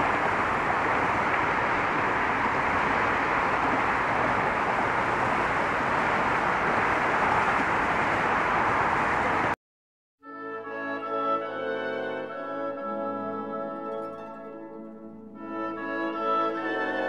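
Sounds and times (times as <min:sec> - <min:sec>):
traffic on a bridge: 0:00.0 - 0:09.6.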